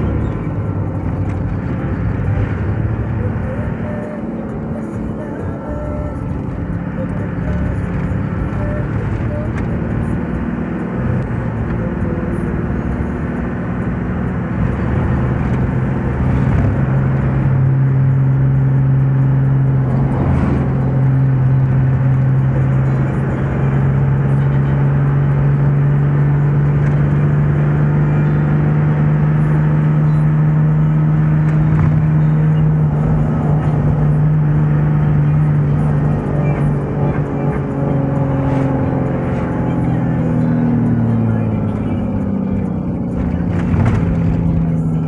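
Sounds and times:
vehicle engine droning: 0.0s - 45.0s.

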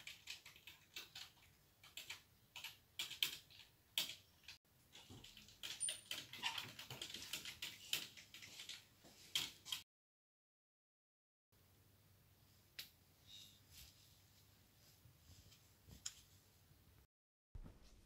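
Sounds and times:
keyboard typing: 0.0s - 9.8s.

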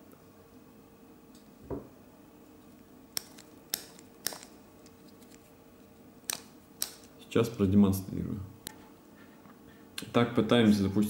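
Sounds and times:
soft knock: 1.6s - 1.9s.

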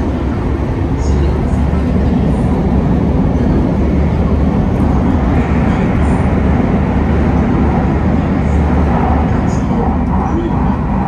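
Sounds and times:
train running through tunnel: 0.0s - 11.0s.

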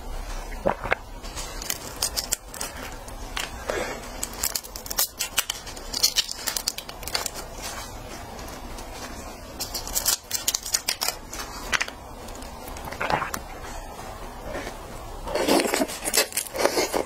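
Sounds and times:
plastic gloves crinkling: 0.0s - 17.0s
shrimp shell cracking: 1.6s - 3.5s, 4.2s - 7.5s, 9.6s - 13.0s.

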